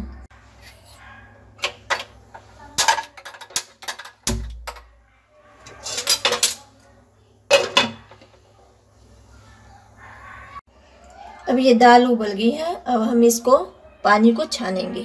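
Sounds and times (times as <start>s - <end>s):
kitchenware clinking against pan: 1.6s - 4.9s, 5.6s - 6.7s, 7.5s - 8.4s.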